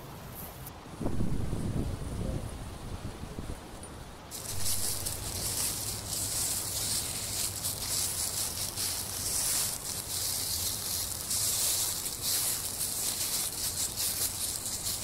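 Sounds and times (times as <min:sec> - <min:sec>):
footsteps on dry leaves: 0:04.3 - 0:15.0.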